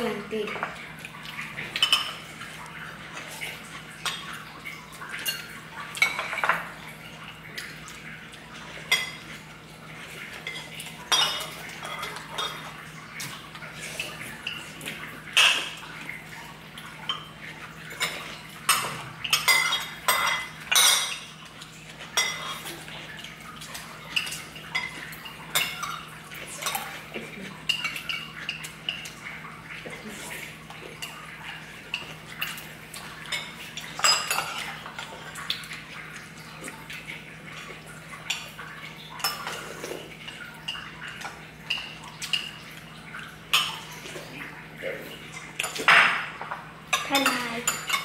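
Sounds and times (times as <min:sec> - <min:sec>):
cutlery clinking against dishes: 0:45.6 - 0:48.0.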